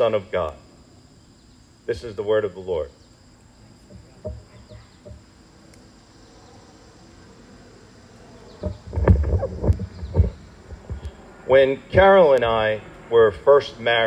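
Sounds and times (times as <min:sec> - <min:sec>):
insects droning: 0:00.0 - 0:14.0
microphone handling bumps: 0:08.6 - 0:11.2.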